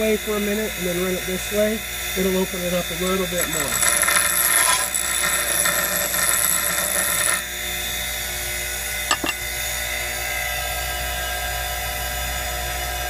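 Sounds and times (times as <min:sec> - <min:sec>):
harsh grinding hiss: 0:00.0 - 0:07.4
bench grinder motor running: 0:00.0 - 0:12.6.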